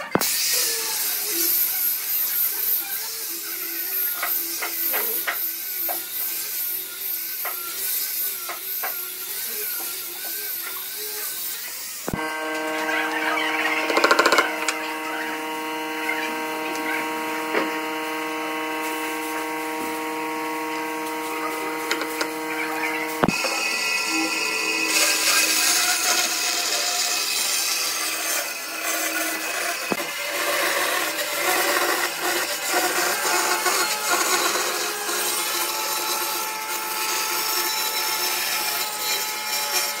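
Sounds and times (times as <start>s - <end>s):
angle grinder sanding wood: 0.0s - 40.0s
hum of held tones: 12.1s - 25.2s.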